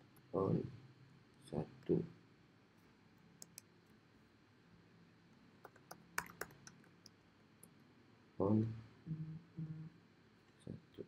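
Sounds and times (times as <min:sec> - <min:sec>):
keyboard typing: 0:05.6 - 0:07.0.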